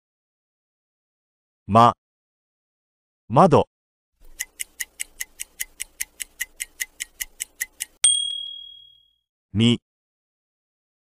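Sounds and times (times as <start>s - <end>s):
clock ticking: 4.2s - 8.9s
bright ding: 8.0s - 9.1s.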